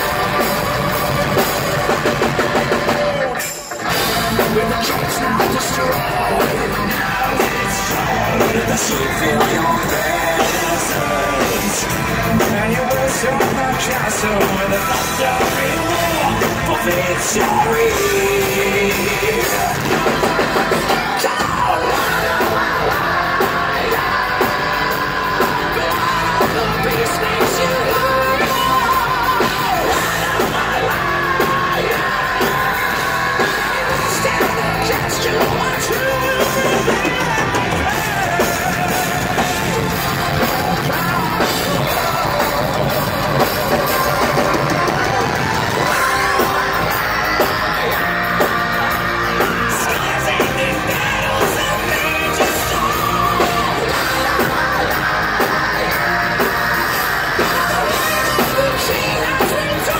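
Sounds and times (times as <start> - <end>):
bass: 0.0 - 59.9
distorted electric guitars: 0.0 - 59.9
drums: 0.0 - 59.9.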